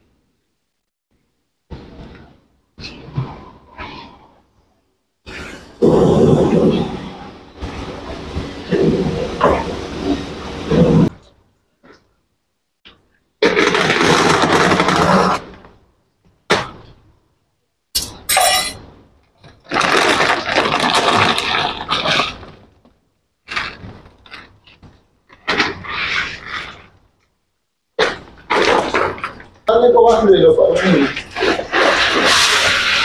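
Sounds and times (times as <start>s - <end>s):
plastic sack crinkling: 19.5s - 22.8s, 23.4s - 26.9s.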